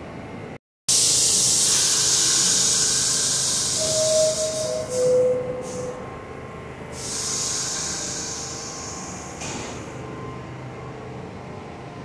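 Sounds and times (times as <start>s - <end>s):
idling train hum: 0.0s - 12.0s
compressed air hissing: 0.9s - 6.0s, 6.9s - 9.8s.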